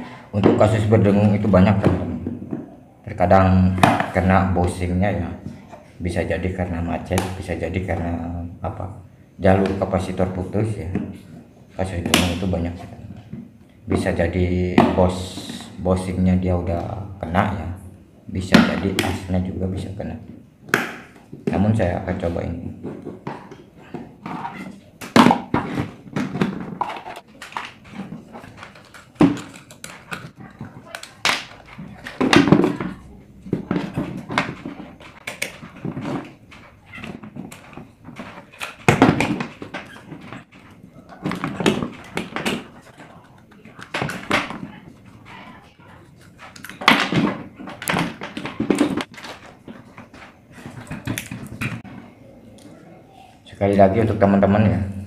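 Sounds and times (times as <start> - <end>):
plastic parts clattering: 21.2 - 52.1.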